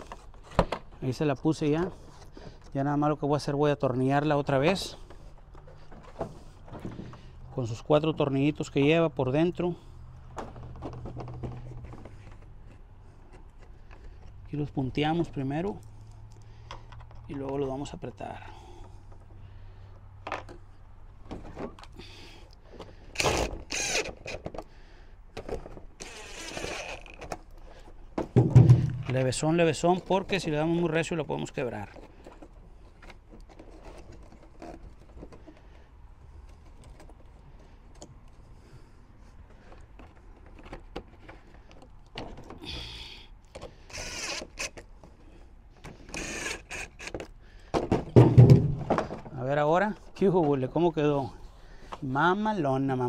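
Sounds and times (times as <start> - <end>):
light clicks and handling knocks: 15.6 - 17.9, 39.4 - 42.6
cordless drill whirring: 23.1 - 24.4, 26.0 - 27.2, 43.8 - 44.8, 46.0 - 47.2.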